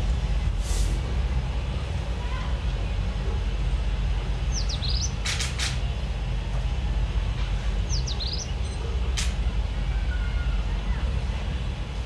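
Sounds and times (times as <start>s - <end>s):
low rumble: 0.0s - 8.7s
high chirping call: 4.5s - 5.2s, 7.9s - 8.8s.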